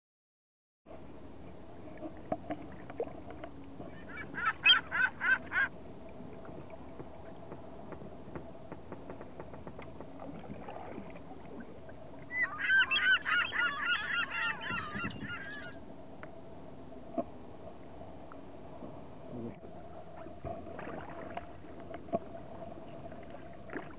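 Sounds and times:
geese honking: 0:04.0 - 0:05.7, 0:12.3 - 0:15.8.

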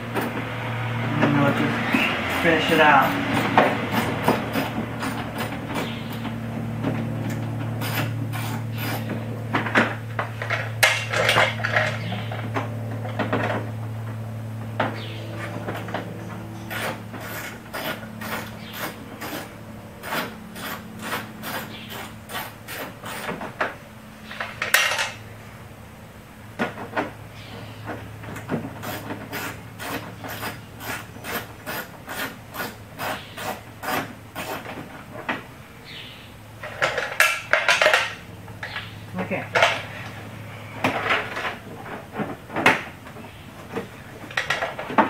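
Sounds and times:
scraping rattle: 0:01.3 - 0:13.7.

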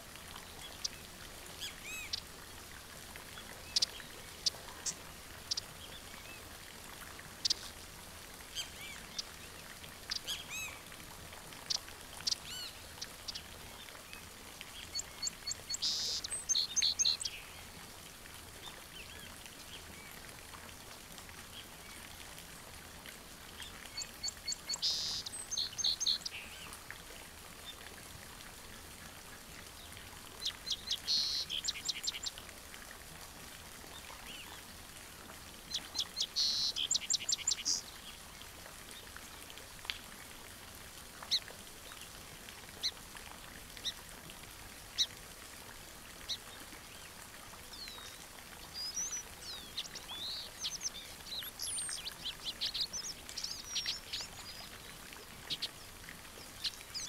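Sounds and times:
faint outdoor hiss: 0:00.0 - 0:57.0
songbirds chirping: 0:00.3 - 0:06.5, 0:07.2 - 0:11.0, 0:11.6 - 0:17.7, 0:23.5 - 0:26.8, 0:29.7 - 0:32.4, 0:35.6 - 0:39.1, 0:46.3 - 0:57.0.

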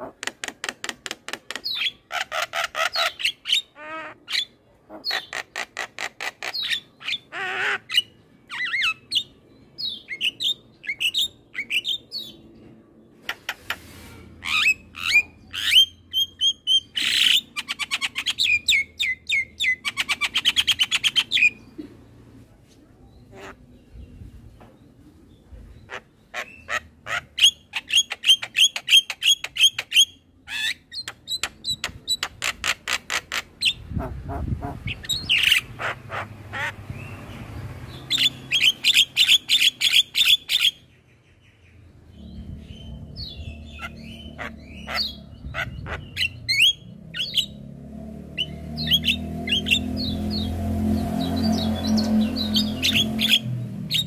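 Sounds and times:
low rumble: 0:41.8 - 0:47.8.

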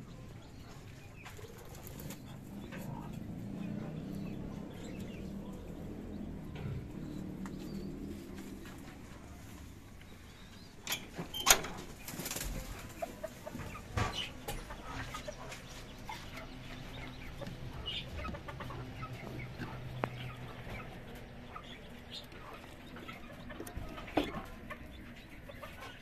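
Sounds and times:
chickens clucking: 0:00.0 - 0:26.0
wire cages rattling: 0:10.5 - 0:15.6.

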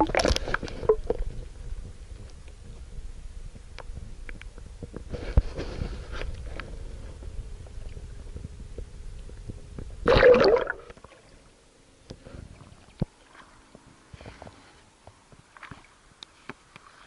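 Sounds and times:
underwater water rumble: 0:00.0 - 0:11.6
gurgling rush of air bubbles: 0:10.0 - 0:11.2.

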